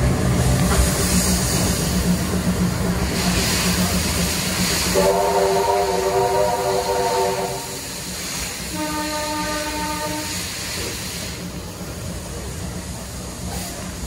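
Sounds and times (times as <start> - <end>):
moving train hiss and rumble: 0.0 - 14.0
steam locomotive whistle: 4.9 - 7.9, 8.7 - 10.5.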